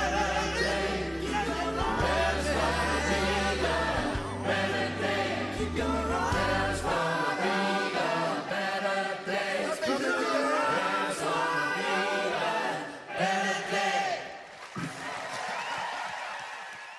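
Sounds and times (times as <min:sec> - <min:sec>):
low bass accompaniment: 0:00.0 - 0:07.2
choir singing: 0:00.0 - 0:14.4.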